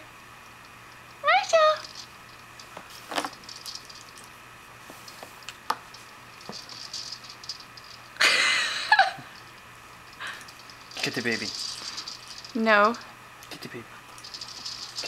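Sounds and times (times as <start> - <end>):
plastic toy rattling: 1.5 - 4.3, 5.9 - 8.2, 10.2 - 13.1, 14.1 - 15.0
plastic toys clicking and knocking: 10.2 - 13.0, 14.2 - 15.0.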